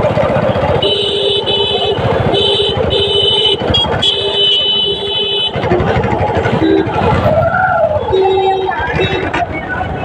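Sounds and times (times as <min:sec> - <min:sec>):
road and wind noise: 0:00.0 - 0:10.0
vehicle horn honking: 0:00.7 - 0:05.8, 0:06.5 - 0:07.0, 0:08.1 - 0:09.2.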